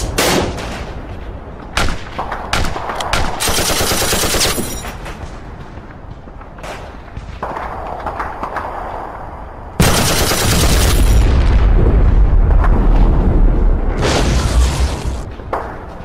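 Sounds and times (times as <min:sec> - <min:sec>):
gunshots: 0:01.8 - 0:05.3, 0:09.8 - 0:11.6
loud explosion with low rumble: 0:09.8 - 0:15.4.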